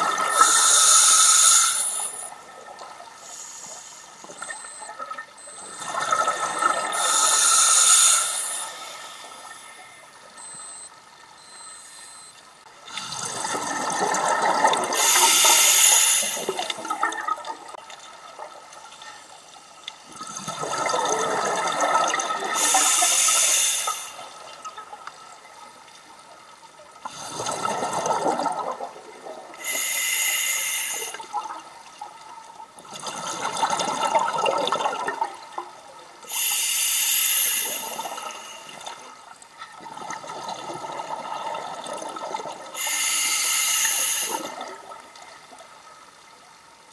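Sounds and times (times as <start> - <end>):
regulator inhalation hiss: 0.3 - 2.3, 7.0 - 9.9, 15.0 - 16.8, 22.6 - 24.4, 29.6 - 31.2, 36.3 - 38.8, 42.8 - 44.6.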